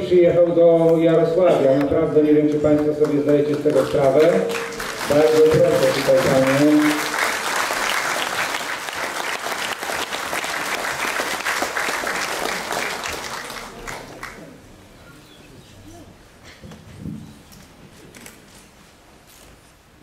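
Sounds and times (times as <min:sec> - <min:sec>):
audience applauding: 0:02.6 - 0:14.6.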